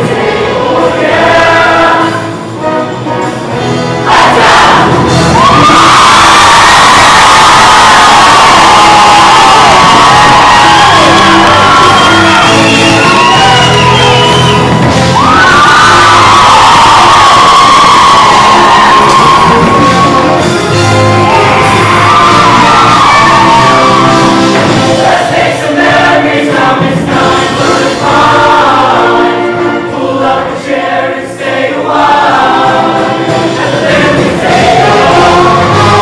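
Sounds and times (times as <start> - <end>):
choir singing: 0.0 - 14.6, 16.2 - 36.0
instrumental backing: 18.0 - 36.0.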